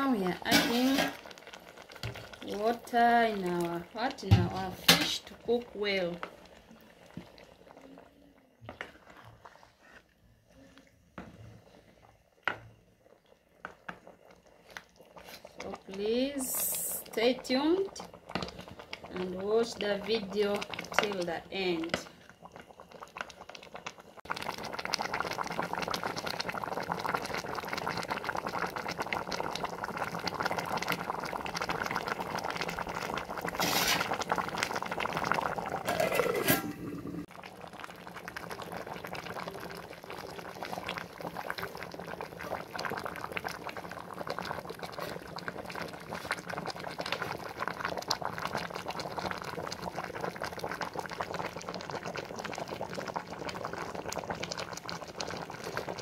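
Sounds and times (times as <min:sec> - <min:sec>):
soup bubbling in a pot: 0:00.0 - 0:56.0
metallic scrape and clatter: 0:35.9 - 0:37.0.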